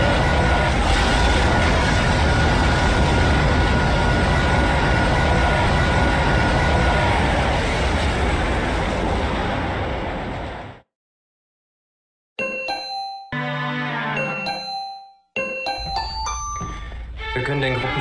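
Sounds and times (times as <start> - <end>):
loud roaring with deep rumble: 0.0 - 10.8.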